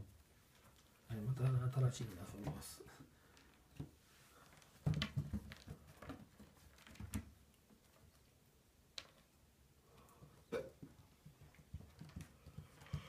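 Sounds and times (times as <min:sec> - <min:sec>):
kitten paws tapping wooden floor: 0:01.7 - 0:09.4, 0:10.8 - 0:13.0.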